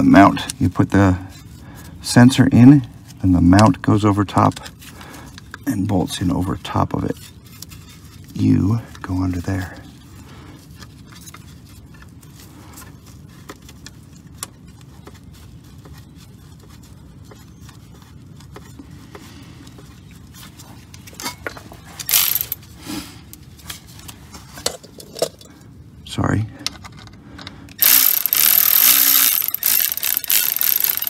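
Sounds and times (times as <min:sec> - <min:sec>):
small metal clicks and scrapes: 0:06.6 - 0:19.0, 0:19.7 - 0:22.7, 0:26.7 - 0:31.0
metallic clatter of tools: 0:21.1 - 0:22.6.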